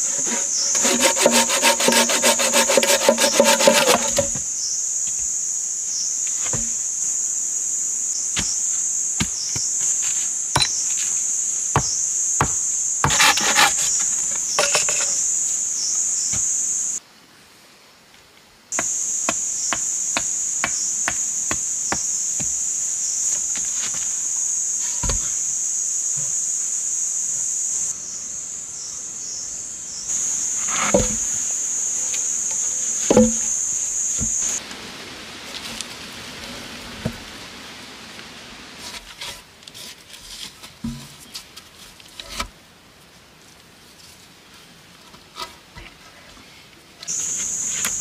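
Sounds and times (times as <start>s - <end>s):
insects droning: 0.0s - 17.2s, 18.6s - 36.2s, 47.0s - 48.0s
wooden logs knocking: 0.8s - 4.5s, 11.8s - 14.0s, 18.8s - 22.6s, 33.1s - 34.5s.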